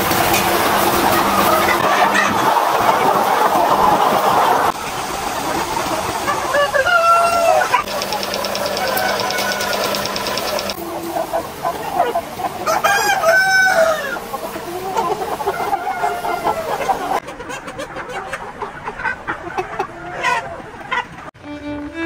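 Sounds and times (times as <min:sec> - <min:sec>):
chickens clucking: 0:00.0 - 0:21.3
rooster crowing: 0:06.5 - 0:10.8, 0:12.6 - 0:14.3, 0:15.4 - 0:17.2.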